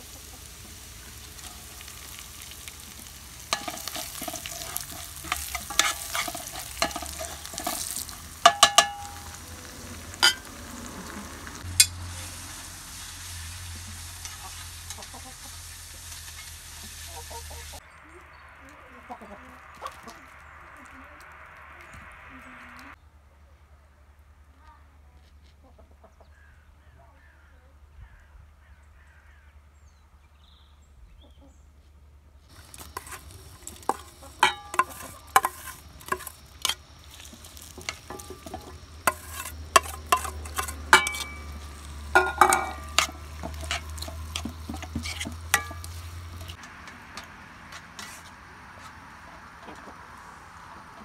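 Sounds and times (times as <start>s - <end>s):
frying sizzle: 0.0s - 23.0s, 32.5s - 51.0s
metal spoon scraping metal bowl: 3.5s - 9.4s, 10.2s - 10.5s, 32.7s - 46.6s, 48.0s - 48.3s.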